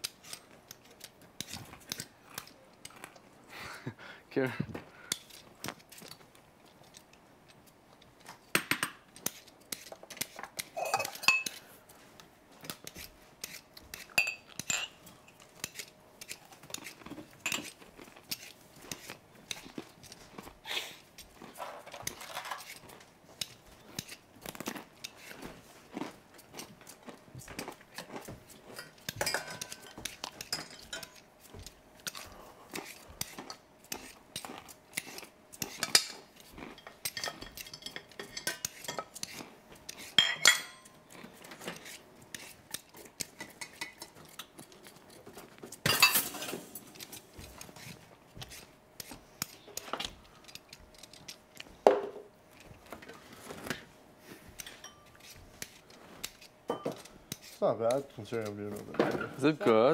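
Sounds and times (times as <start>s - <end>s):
dishes and pans clinking: 10.8s - 11.6s, 14.2s - 15.4s, 28.7s - 31.2s, 35.8s - 39.2s, 40.2s - 41.0s, 45.8s - 46.9s, 56.7s - 57.1s.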